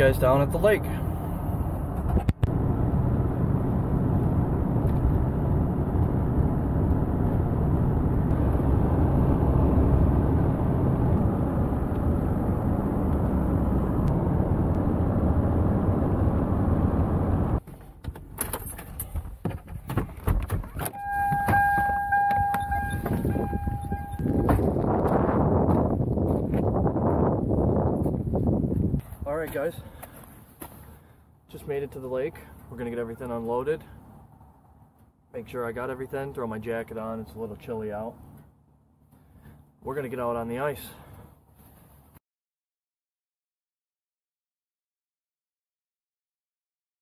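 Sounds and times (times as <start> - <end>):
road and engine noise in cab: 0.0 - 42.2
car door opening: 17.7 - 24.8
door-open warning tone: 20.9 - 24.7.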